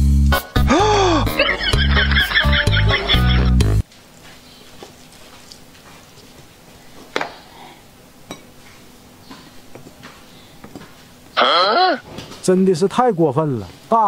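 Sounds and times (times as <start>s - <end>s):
tableware clinking: 8.3s - 8.6s.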